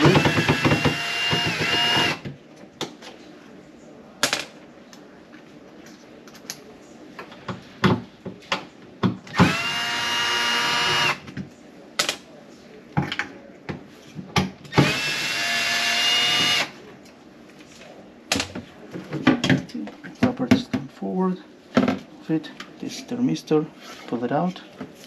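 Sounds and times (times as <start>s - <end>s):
cordless drill running: 0.0s - 2.2s, 9.3s - 11.2s, 14.8s - 16.7s.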